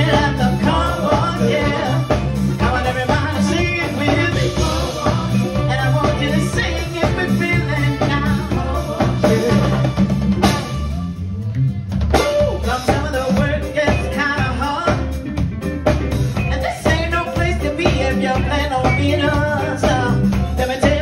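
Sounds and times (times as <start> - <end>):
woman singing: 0.0 - 10.0, 12.6 - 15.2, 16.5 - 21.0
funk band playing: 0.0 - 21.0.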